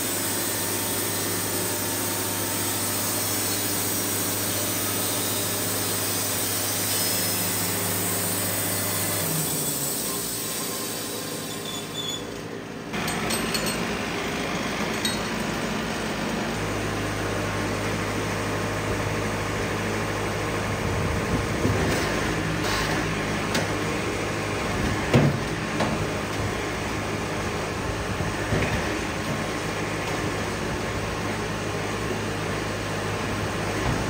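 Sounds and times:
sawmill machinery running: 0:00.0 - 0:34.0
sharp knocks and clinks: 0:13.0 - 0:13.9.

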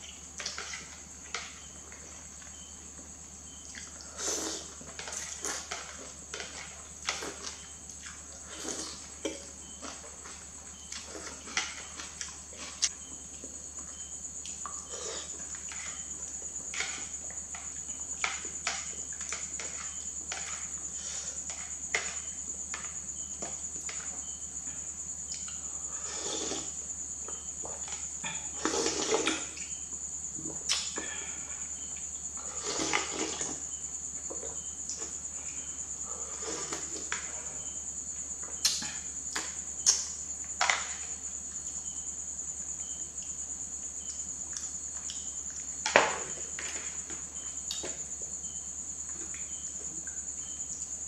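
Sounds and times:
cricket trill: 0:00.0 - 0:51.0
chewing: 0:03.5 - 0:22.3
noodle slurps: 0:26.0 - 0:26.8, 0:28.5 - 0:29.5, 0:32.4 - 0:33.6.

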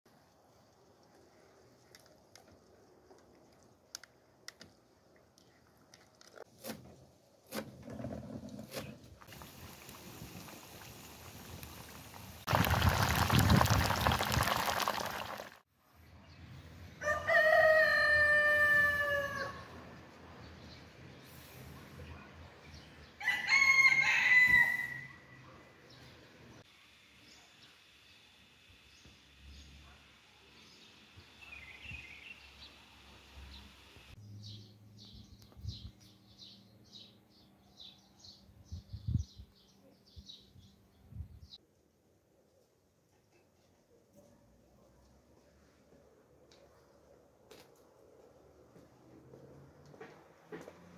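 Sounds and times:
rooster crowing: 0:17.0 - 0:19.7, 0:23.2 - 0:25.2.

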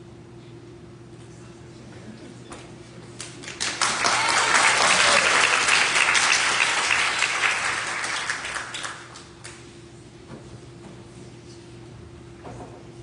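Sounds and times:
audience applauding: 0:03.2 - 0:09.6.

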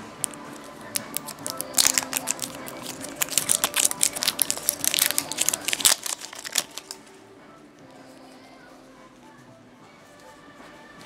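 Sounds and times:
plastic wrapper crinkling: 0:00.2 - 0:07.0.

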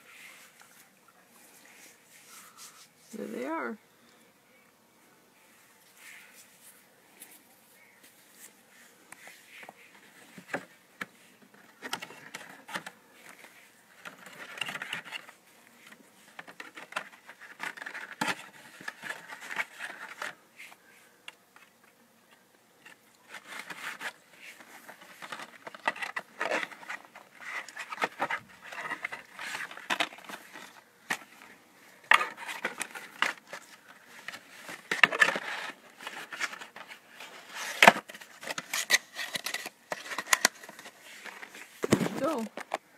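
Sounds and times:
rustling: 0:00.0 - 0:04.3, 0:05.0 - 0:42.9.

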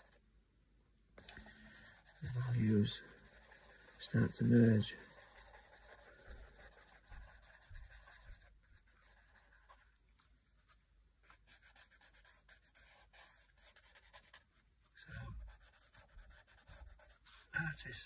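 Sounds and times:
paper stump rubbing on paper: 0:01.2 - 0:09.8.

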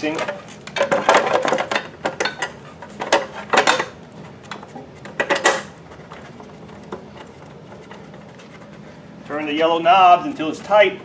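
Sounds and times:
handling scrapes: 0:04.2 - 0:10.8.

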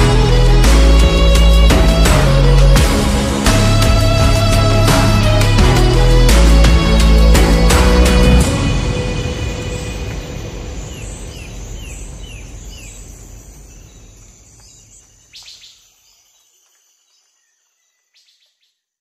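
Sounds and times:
steady background wash: 0:00.0 - 0:15.4
bird chirping: 0:09.3 - 0:19.0.

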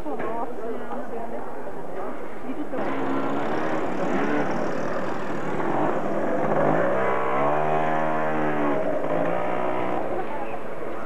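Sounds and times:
street noise: 0:00.0 - 0:11.0
vehicle engine revving: 0:02.8 - 0:11.0.

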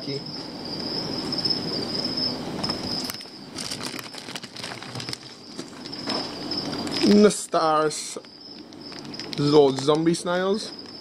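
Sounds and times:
plastic and newspaper crinkling: 0:03.1 - 0:10.7.

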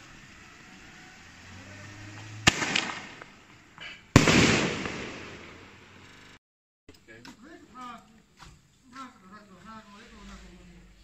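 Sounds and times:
firework launch bang: 0:02.0 - 0:06.0
firework burst bang: 0:02.2 - 0:03.4, 0:04.1 - 0:06.0.

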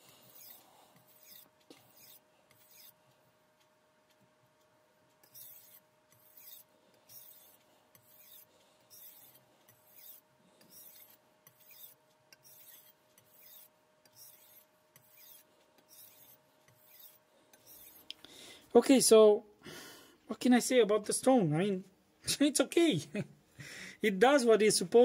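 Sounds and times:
knife scraping on whetstone: 0:00.2 - 0:03.0, 0:05.2 - 0:18.1.

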